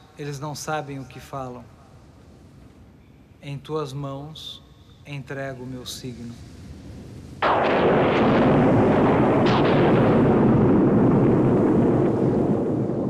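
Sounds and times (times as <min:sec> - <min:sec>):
thunder rumble: 0:06.3 - 0:13.0
thunder crack: 0:07.4 - 0:13.0.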